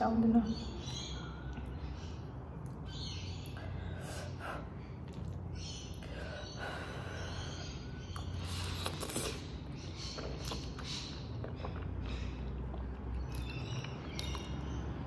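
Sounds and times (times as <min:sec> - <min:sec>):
wet mouth sounds: 0:08.2 - 0:14.7.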